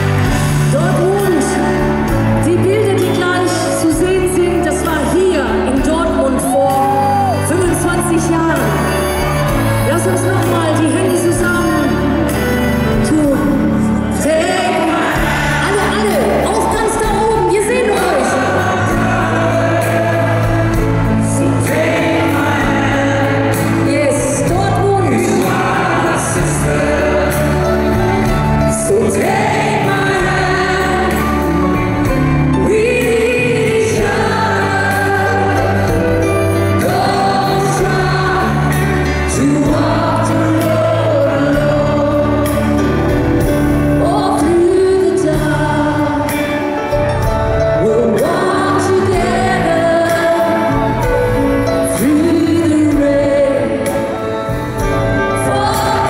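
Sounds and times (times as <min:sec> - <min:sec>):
live pop band playing: 0:00.0 - 0:56.0
woman and man singing together: 0:13.1 - 0:43.4, 0:44.0 - 0:46.9, 0:47.6 - 0:56.0.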